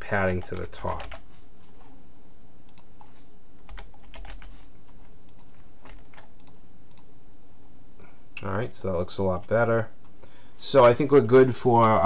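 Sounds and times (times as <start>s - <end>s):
steady low hum: 0.0s - 12.0s
computer keyboard typing: 0.4s - 1.2s, 2.7s - 7.1s.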